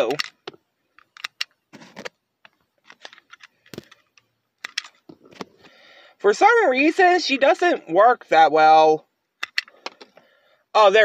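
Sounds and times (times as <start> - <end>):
plastic toy clicks and taps: 9.4 - 10.1.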